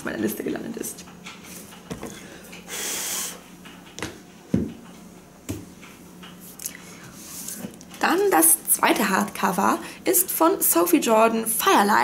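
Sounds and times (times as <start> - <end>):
books knocking and rustling: 1.9 - 2.2.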